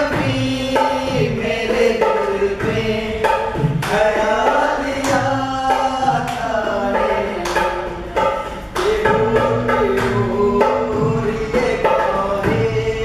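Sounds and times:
steady drum beat: 0.0 - 13.0
person singing: 3.9 - 13.0.

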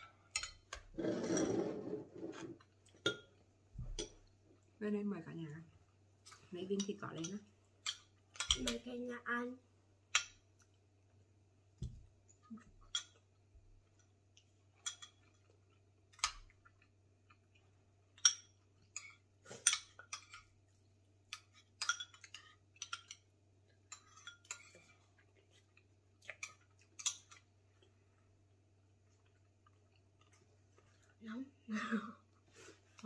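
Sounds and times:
spoons clinking on ceramic bowls: 6.7 - 8.9, 21.3 - 24.9.

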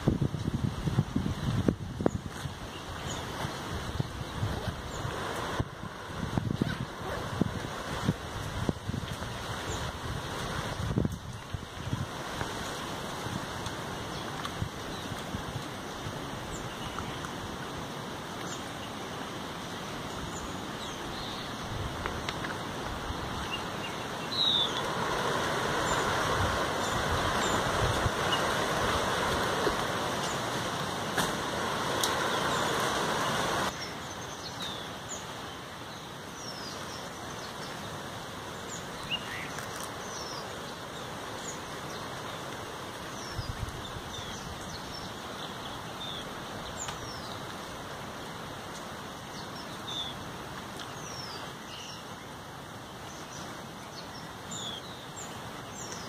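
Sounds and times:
birds chirping: 1.4 - 17.7, 18.4 - 47.6, 49.2 - 50.2, 50.8 - 56.0
even rushing noise: 22.7 - 33.8.

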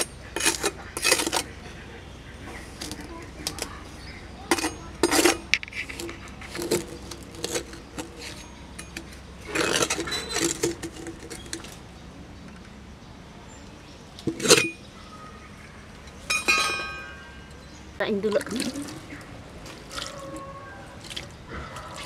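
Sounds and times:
spatula scraping sand on metal: 0.0 - 1.5, 4.5 - 8.9
metal clinking on glass: 16.3 - 17.6.

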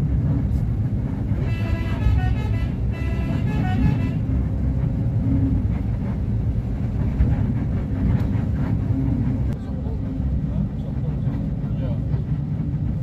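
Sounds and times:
bus engine and road rumble: 0.0 - 13.0
multi-tone vehicle horn tune: 1.4 - 4.5.

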